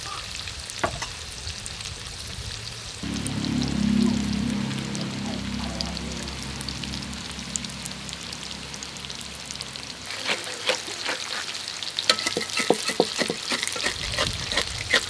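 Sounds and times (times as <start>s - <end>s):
tofu sizzling in oil: 0.0s - 3.0s, 8.0s - 15.0s
spatula scraping wok: 9.9s - 15.0s.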